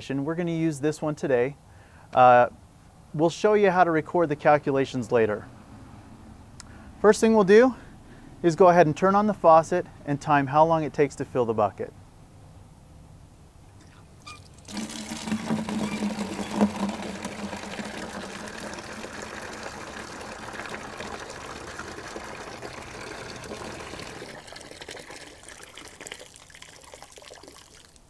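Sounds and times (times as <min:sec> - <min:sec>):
water pouring into plastic bucket: 0:13.8 - 0:28.0.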